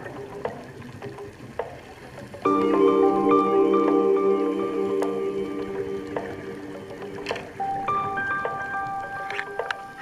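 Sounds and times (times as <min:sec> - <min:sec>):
held chord: 0:02.5 - 0:09.3.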